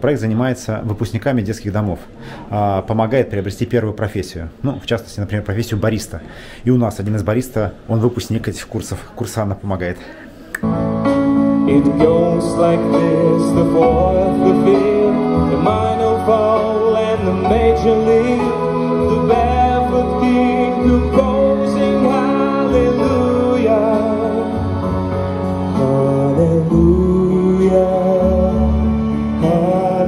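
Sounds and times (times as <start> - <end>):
orchestra sustained chords: 10.7 - 30.0
man singing with vibrato: 11.5 - 30.0.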